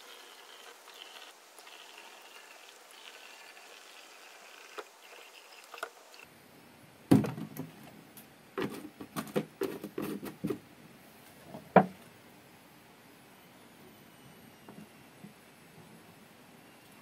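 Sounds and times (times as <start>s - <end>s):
knocks and clunks: 7.1s - 7.7s.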